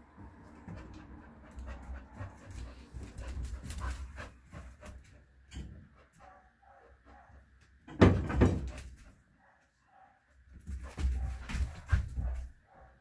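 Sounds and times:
dog panting: 0.2s - 7.3s, 10.7s - 13.0s.

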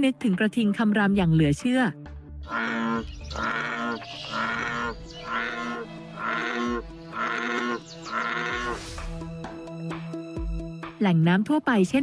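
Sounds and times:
bullfrog croaking: 2.4s - 8.8s.

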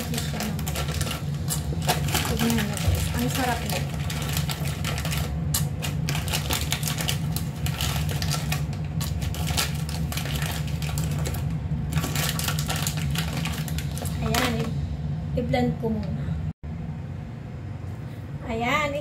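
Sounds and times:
plastic snack bag crinkling: 0.0s - 14.7s
steady low hum: 0.0s - 19.0s.

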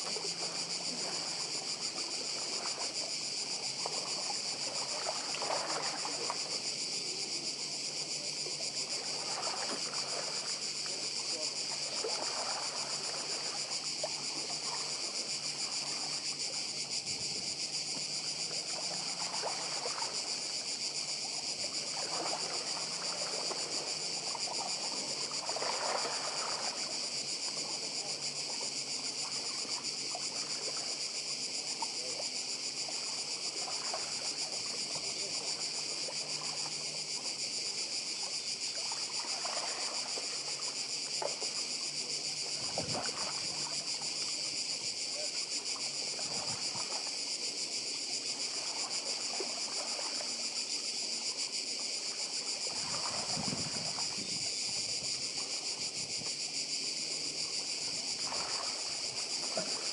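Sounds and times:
cicadas singing: 0.0s - 59.9s.

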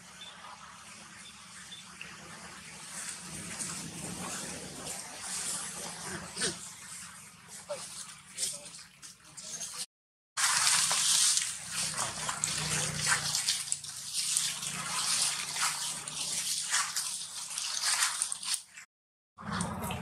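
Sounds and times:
footsteps on dry leaves: 10.4s - 18.7s.

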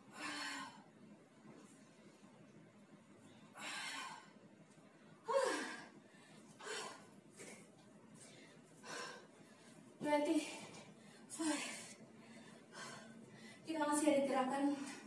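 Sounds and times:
woman breathing hard: 0.0s - 1.0s, 3.3s - 4.4s, 5.1s - 7.6s, 8.2s - 13.7s.

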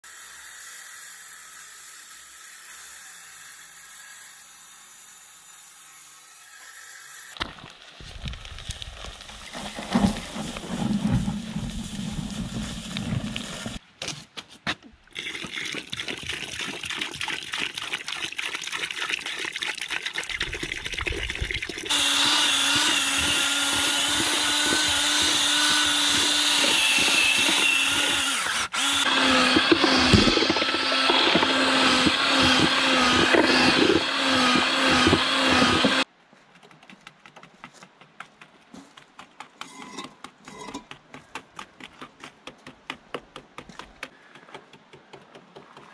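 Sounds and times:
cordless drill mixing cement: 9.7s - 13.8s, 21.9s - 36.1s.

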